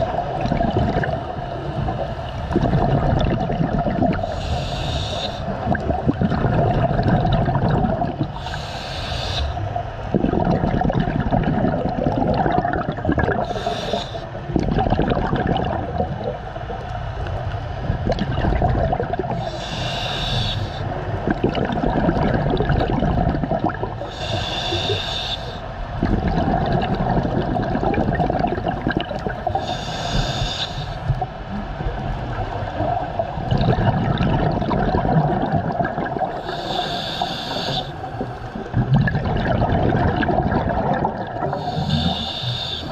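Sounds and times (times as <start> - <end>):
rumble of exhaled bubbles: 0.0 - 4.4, 5.5 - 8.5, 9.6 - 19.5, 20.9 - 24.9, 25.8 - 30.4, 31.0 - 42.9
regulator hissing inhale: 4.2 - 5.6, 8.3 - 9.7, 13.4 - 14.4, 19.4 - 21.0, 24.0 - 25.7, 29.5 - 31.2, 36.3 - 38.7, 41.4 - 42.9.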